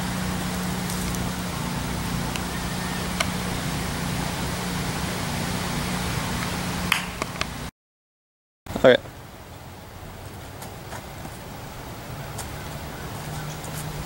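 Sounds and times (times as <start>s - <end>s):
low steady hum: 0.0s - 7.7s.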